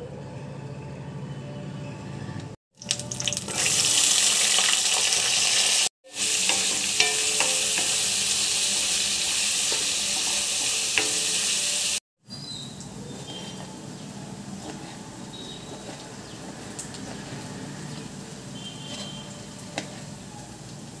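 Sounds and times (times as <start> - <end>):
food sizzling in hot oil: 2.8 - 12.0, 15.3 - 21.0.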